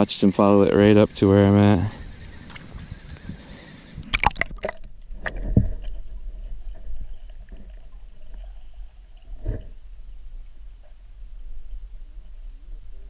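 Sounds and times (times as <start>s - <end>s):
underwater sloshing and gurgling: 1.9s - 13.0s
water splashes: 4.0s - 9.5s.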